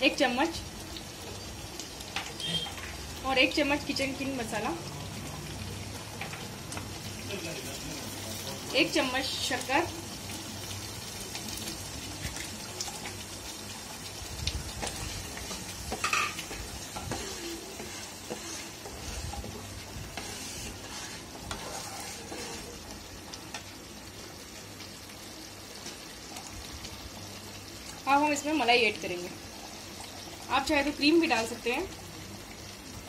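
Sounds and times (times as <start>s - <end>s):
gravy bubbling and sizzling: 0.0s - 33.0s
spatula scraping and tapping a pan: 14.8s - 22.8s.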